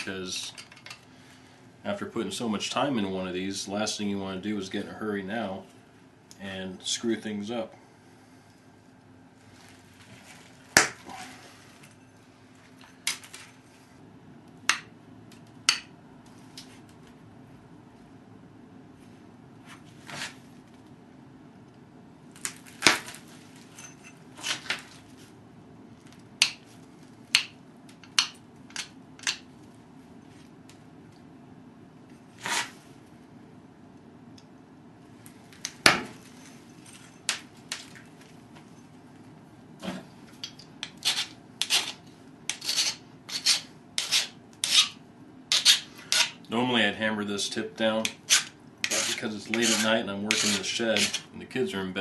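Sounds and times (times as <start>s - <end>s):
metal file rasping on copper: 41.0s - 46.4s, 48.0s - 51.3s.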